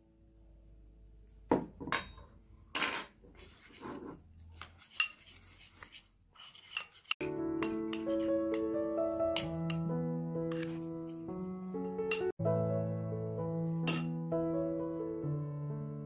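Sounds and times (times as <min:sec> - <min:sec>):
spoon scraping ceramic bowl: 0:02.9 - 0:08.6, 0:10.5 - 0:10.9, 0:13.8 - 0:14.1
music: 0:07.2 - 0:16.0
spoon clinking on bowl: 0:12.1 - 0:12.3, 0:13.8 - 0:14.1.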